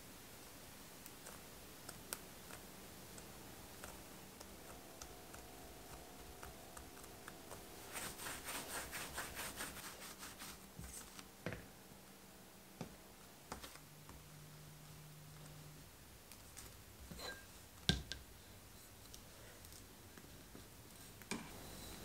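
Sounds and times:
hands rolling dough on countertop: 0:01.1 - 0:11.7, 0:12.8 - 0:14.3.

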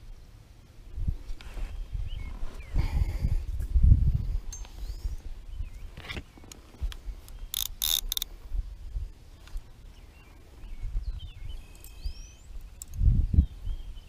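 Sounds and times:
fishing reel clicking: 0:07.5 - 0:08.3.

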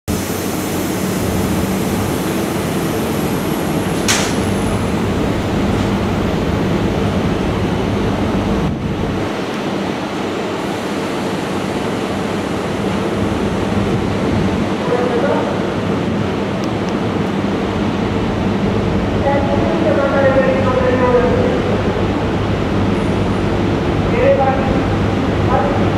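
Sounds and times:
electric locomotive hum and whir: 0:00.1 - 0:25.9
sharp click: 0:04.0 - 0:04.5.

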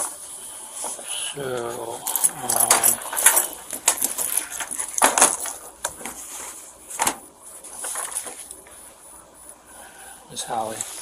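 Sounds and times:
handling rustles: 0:00.0 - 0:08.8.

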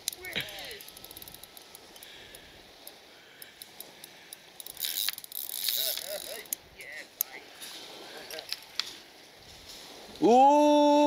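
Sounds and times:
fishing reel ticking: 0:00.0 - 0:07.4.

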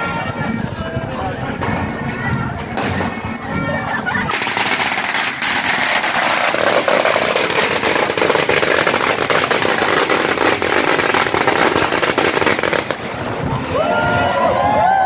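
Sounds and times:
firecrackers cracking: 0:01.6 - 0:03.5, 0:04.1 - 0:13.7.

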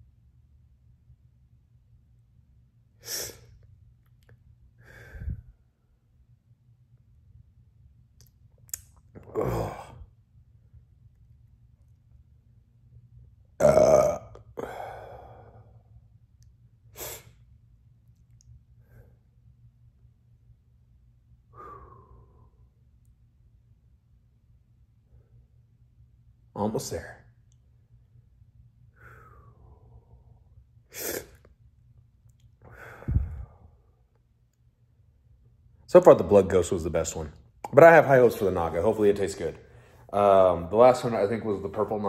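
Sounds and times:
short sharp exhale: 0:03.0 - 0:03.5, 0:04.8 - 0:05.5, 0:16.9 - 0:17.4, 0:21.5 - 0:22.6, 0:29.0 - 0:30.1, 0:30.9 - 0:31.4, 0:32.7 - 0:33.7
man breathing hard: 0:04.8 - 0:05.7, 0:14.6 - 0:15.9, 0:21.5 - 0:22.7, 0:28.9 - 0:31.3, 0:32.6 - 0:34.0
man burping: 0:09.2 - 0:10.0, 0:13.6 - 0:14.9.

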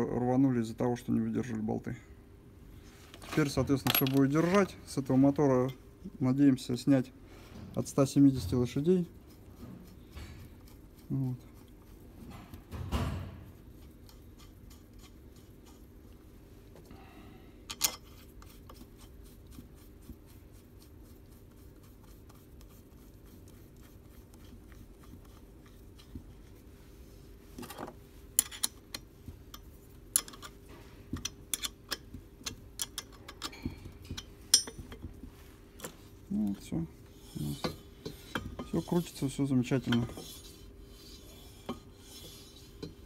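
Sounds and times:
faint steady hum: 0:00.0 - 0:43.0
metal clicks and taps: 0:31.2 - 0:35.1.

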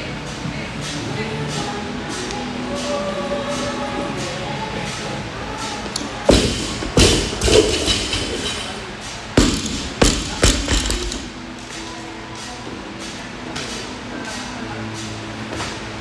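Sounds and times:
barbell thudding on rubber floor: 0:06.3 - 0:08.7, 0:09.4 - 0:11.3.

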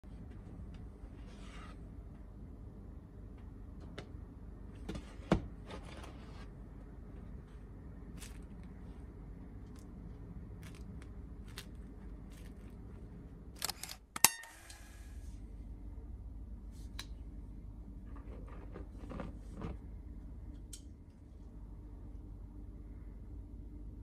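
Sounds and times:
low steady hum: 0:00.0 - 0:24.0
baguette crust crackling: 0:09.5 - 0:13.4.

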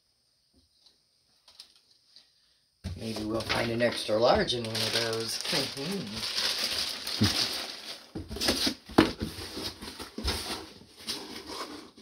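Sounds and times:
packaging crinkling and rustling: 0:03.0 - 0:12.0.

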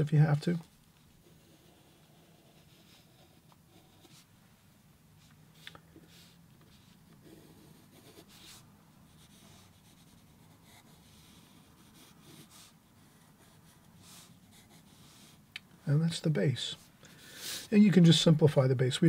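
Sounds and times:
pencil scratching on paper: 0:01.0 - 0:04.3, 0:06.1 - 0:15.4.

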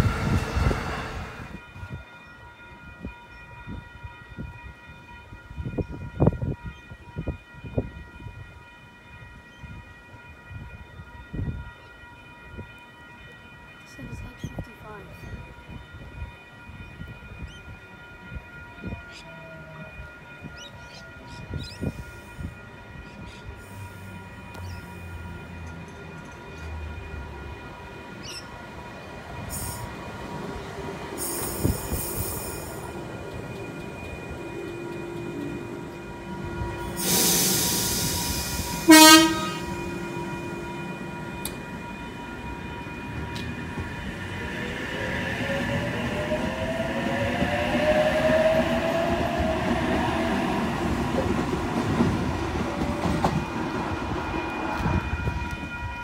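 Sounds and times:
electric train approaching: 0:00.0 - 0:56.0
train horn blast: 0:35.5 - 0:41.5
air hiss: 0:36.9 - 0:38.9.

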